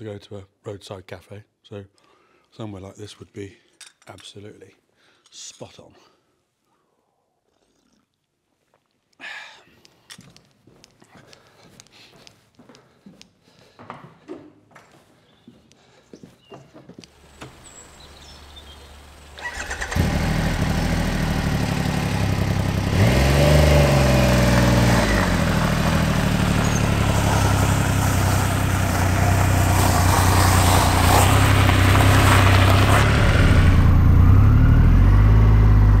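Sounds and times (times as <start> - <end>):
motorcycle engine starting and revving: 17.2 - 36.0.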